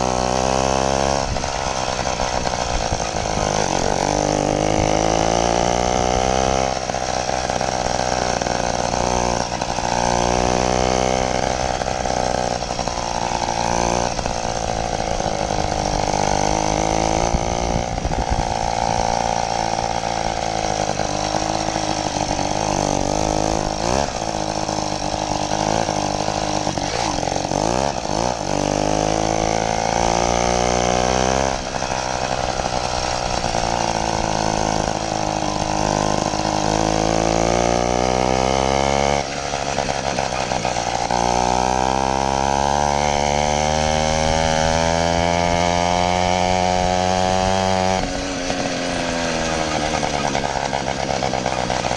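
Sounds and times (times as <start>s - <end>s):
two-stroke engine buzzing: 0.0s - 51.9s.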